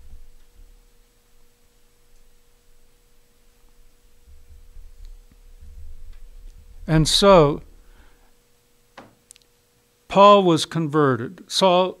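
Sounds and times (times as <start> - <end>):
faint steady hum: 0.0 - 12.0
low rumble: 4.1 - 8.2.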